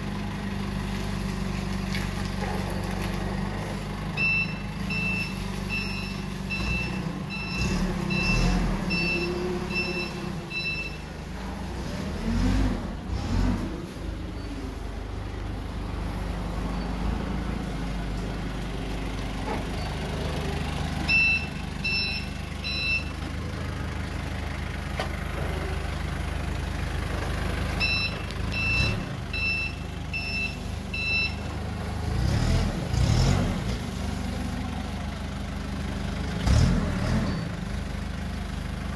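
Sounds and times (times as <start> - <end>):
forklift engine running: 0.0 - 38.9
reversing alarm beeps: 4.2 - 11.0, 21.1 - 23.1, 27.8 - 31.4.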